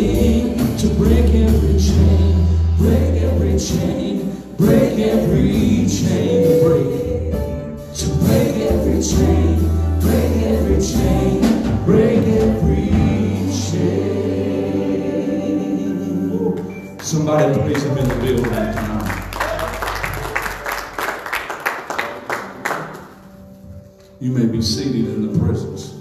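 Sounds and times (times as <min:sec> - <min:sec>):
drums: 0:00.0 - 0:15.8
group singing in harmony: 0:00.0 - 0:17.0
low bass notes: 0:00.0 - 0:21.0
keyboard: 0:00.0 - 0:26.0.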